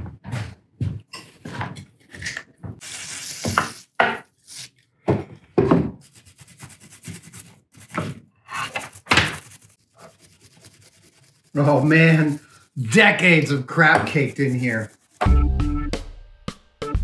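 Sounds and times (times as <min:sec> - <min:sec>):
aerosol can spraying: 0:02.8 - 0:04.6
knocks and rubbing on bench: 0:05.1 - 0:06.0, 0:13.9 - 0:14.5.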